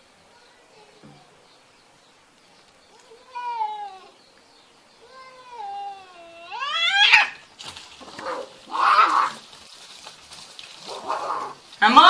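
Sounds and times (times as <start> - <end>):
cat yowling and screeching: 3.2 - 4.1, 5.3 - 7.4, 8.2 - 9.4, 10.9 - 11.6.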